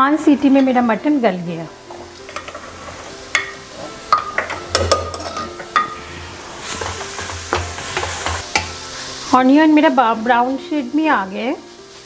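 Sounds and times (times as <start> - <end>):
onion sizzling in butter: 0.0 - 12.0
ladle scraping inside a pot: 2.3 - 4.0, 6.6 - 8.4.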